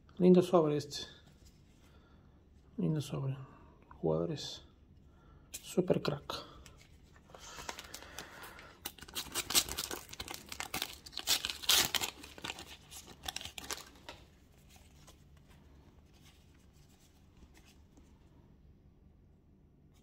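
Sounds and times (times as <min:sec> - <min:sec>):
packet tearing and crinkling: 0:07.4 - 0:14.8.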